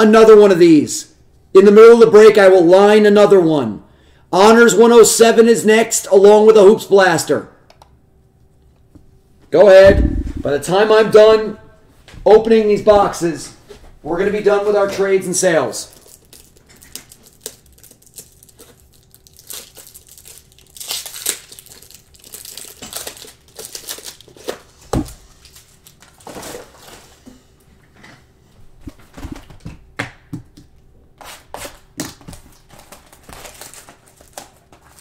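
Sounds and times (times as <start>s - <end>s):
plastic wrap crinkling and tearing: 15.8s - 27.2s, 31.5s - 35.0s.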